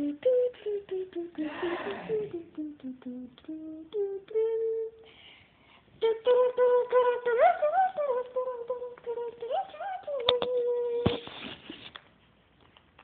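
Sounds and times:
person humming: 0.0s - 5.1s.

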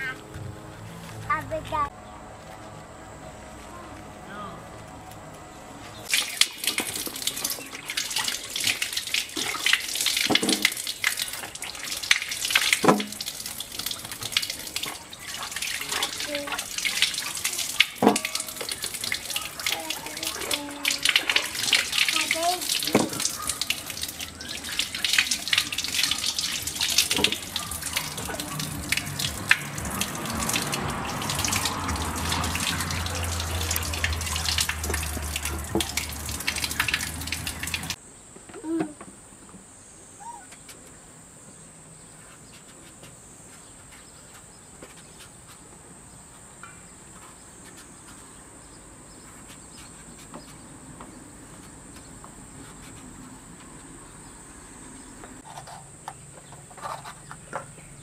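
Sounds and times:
tap water splashing over hands: 6.1s - 38.0s.

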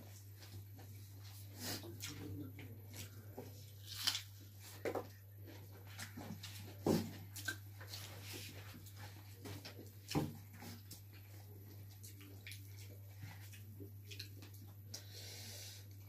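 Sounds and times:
low electrical hum: 0.0s - 16.0s
wet chewing and lip-smacking: 7.3s - 8.2s, 10.1s - 15.1s.

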